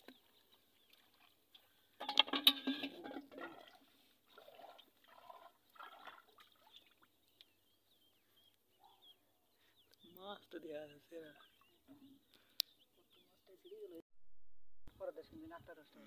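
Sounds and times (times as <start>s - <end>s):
water splashing and trickling: 0.0s - 7.8s, 10.2s - 12.5s.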